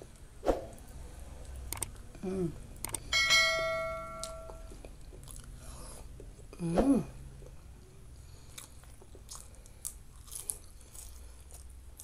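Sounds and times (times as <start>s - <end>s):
sharp clicks: 1.7s - 2.0s, 2.8s - 3.1s
bell-like ding chime: 3.1s - 4.8s.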